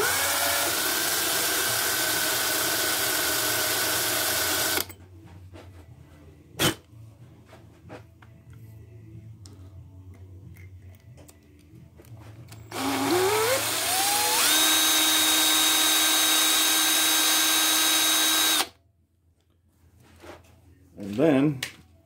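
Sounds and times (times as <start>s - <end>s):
cordless drill whine: 0.0s - 4.9s, 12.7s - 18.7s.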